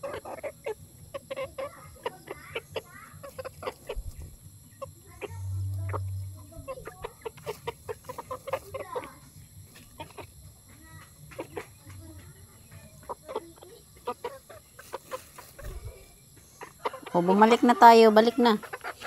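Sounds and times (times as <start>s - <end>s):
chickens clucking softly: 0.0s - 19.0s
low hum: 3.8s - 7.9s.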